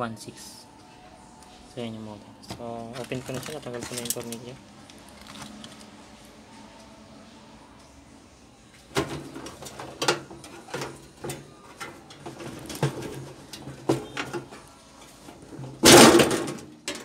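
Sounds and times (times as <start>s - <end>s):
metal case clattering: 8.9s - 14.6s, 15.3s - 17.0s.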